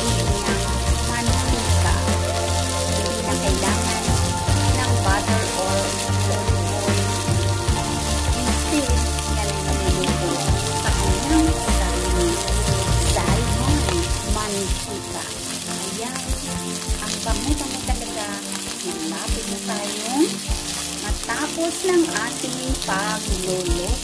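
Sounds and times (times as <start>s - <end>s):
fish sizzling in a pan: 0.0s - 24.0s.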